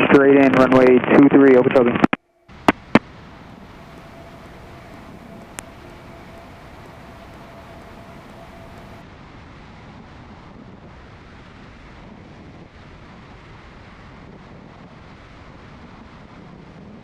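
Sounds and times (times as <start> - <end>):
airplane engine and propeller drone: 0.0 - 9.0
airflow rushing: 2.5 - 9.0.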